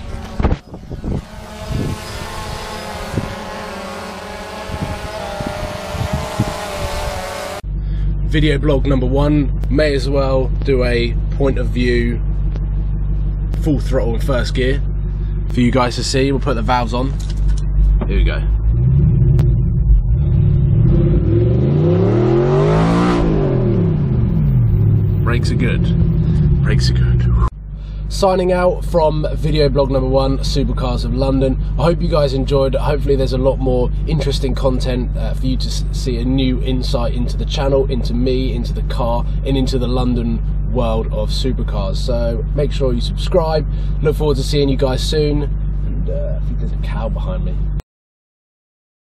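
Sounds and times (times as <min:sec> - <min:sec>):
low thumps: 0:00.0 - 0:07.8, 0:17.5 - 0:28.0
drone propellers whining: 0:00.0 - 0:08.3, 0:17.6 - 0:28.1
car engine at full throttle: 0:00.0 - 0:47.8.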